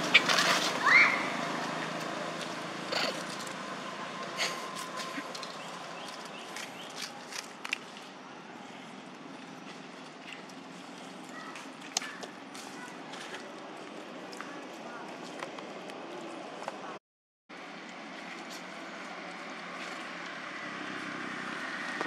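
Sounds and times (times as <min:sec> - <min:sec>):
rustles and clicks in dry leaves: 0:00.0 - 0:08.2.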